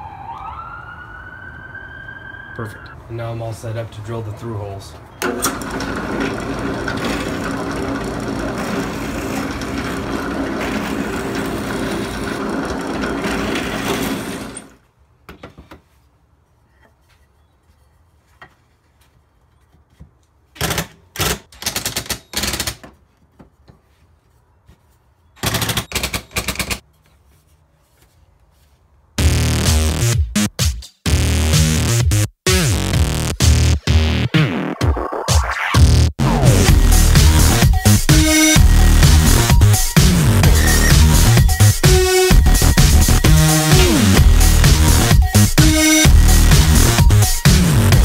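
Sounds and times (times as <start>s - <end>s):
cordless drill bursts: 5.2s - 14.7s
drill press boring wood: 5.2s - 14.8s.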